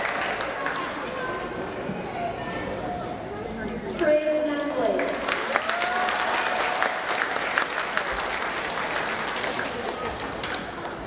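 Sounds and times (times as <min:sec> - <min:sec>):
audience applauding: 0:00.0 - 0:01.4, 0:04.9 - 0:11.0.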